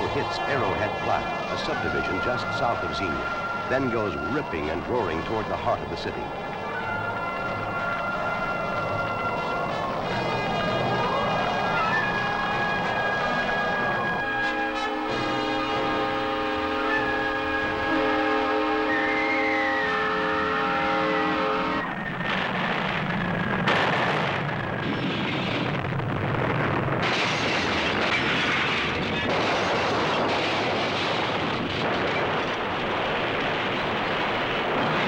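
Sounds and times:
tornado wind roar: 0.0s - 35.0s
locomotive air horn chord: 7.6s - 21.9s
sharp crack: 22.2s - 35.0s.

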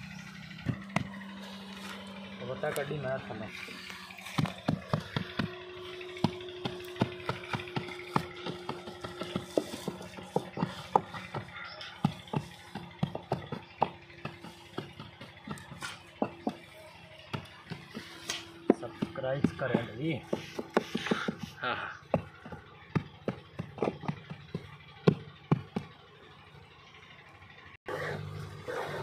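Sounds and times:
wooden tamper knocking and scraping: 4.4s - 25.9s.

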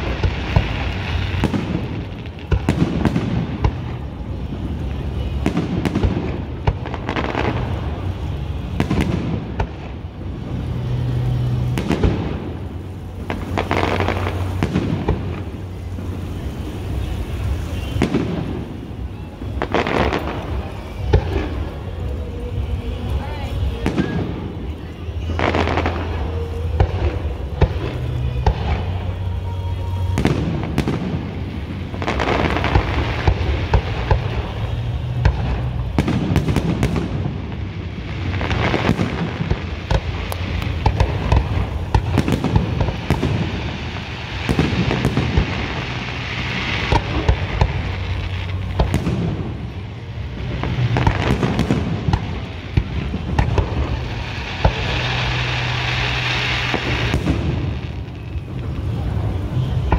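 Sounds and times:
fireworks crackling: 0.0s - 59.9s.

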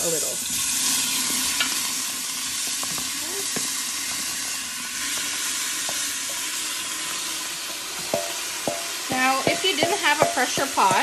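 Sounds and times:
meat sizzling in hot oil: 0.0s - 11.0s
wooden spoon knocking on metal: 8.0s - 11.0s.

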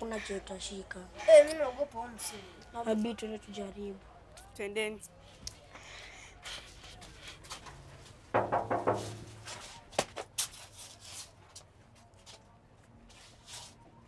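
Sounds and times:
knocking on metal door: 8.3s - 9.5s.

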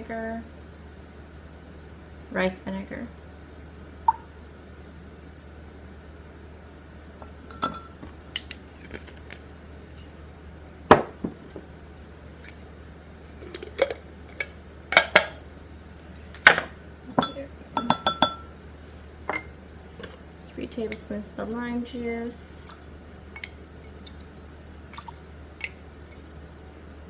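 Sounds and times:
kitchen items knocking on table: 10.9s - 11.4s
spoon clinking on glass cup: 17.2s - 18.5s.

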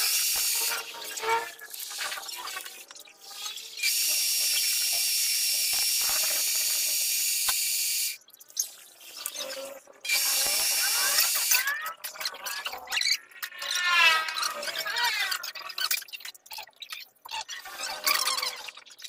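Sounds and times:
lathe drilling high-pitched hiss: 0.0s - 0.7s, 3.8s - 8.2s, 10.1s - 11.6s.

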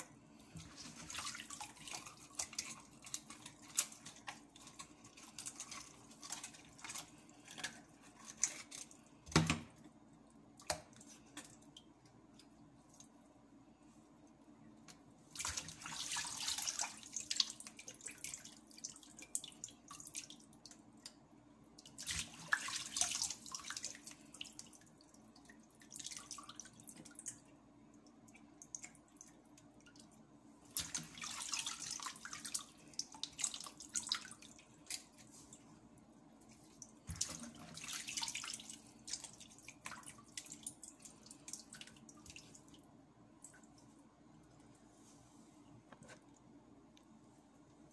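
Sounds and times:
faint steady low hum: 0.0s - 47.9s
tap water running and splashing: 15.4s - 20.8s, 30.7s - 35.4s, 36.7s - 42.7s.

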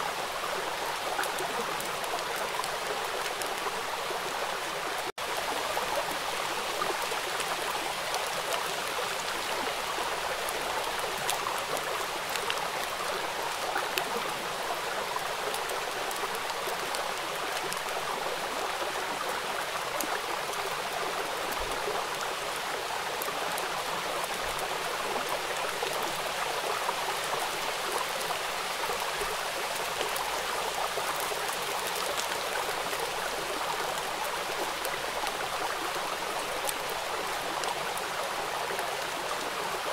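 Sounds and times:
rain falling on water: 0.0s - 39.9s.

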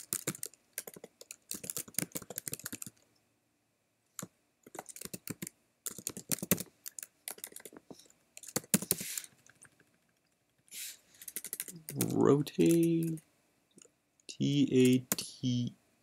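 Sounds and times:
keyboard keys clicking: 0.0s - 3.0s, 4.7s - 10.0s, 11.2s - 13.2s.

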